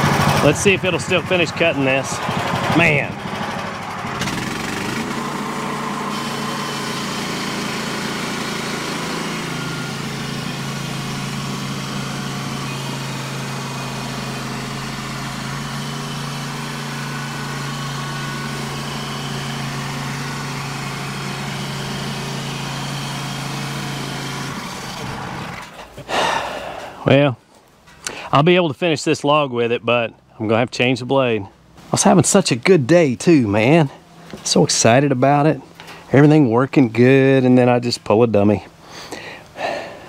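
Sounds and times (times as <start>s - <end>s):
saw blade cutting log: 0.0s - 25.9s
band sawmill engine running: 0.0s - 27.3s, 28.1s - 40.0s.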